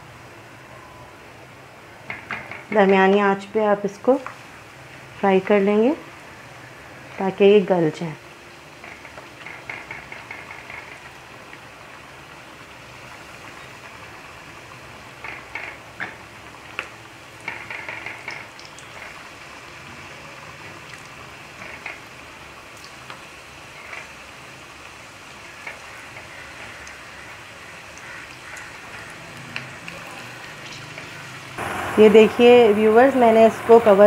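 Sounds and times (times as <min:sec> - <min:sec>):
deep-frying sizzle: 0:00.0 - 0:34.0
oil crackling: 0:08.4 - 0:34.0.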